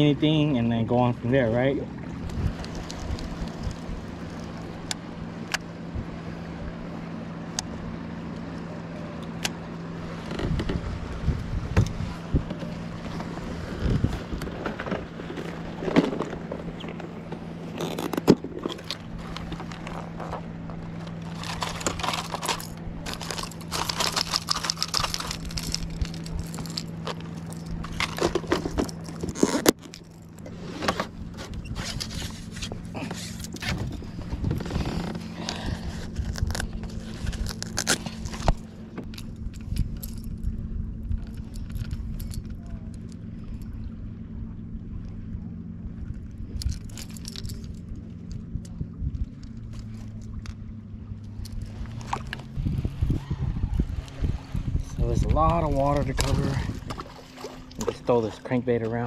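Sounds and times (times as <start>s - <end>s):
low motor hum: 0.0s - 59.0s
plastic lures clattering in a box: 21.0s - 30.3s, 46.6s - 47.8s.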